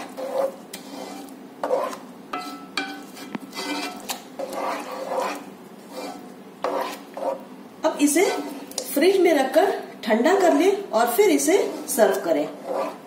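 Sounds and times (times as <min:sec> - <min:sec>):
wooden spoon scraping pot: 0:00.0 - 0:07.5, 0:08.1 - 0:08.9, 0:11.2 - 0:13.0.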